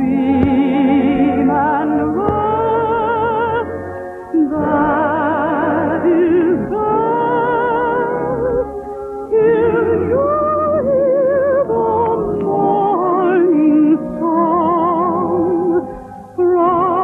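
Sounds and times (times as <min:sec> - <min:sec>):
orchestra: 0:00.0 - 0:17.0
soprano singing operatic lullaby: 0:00.0 - 0:17.0.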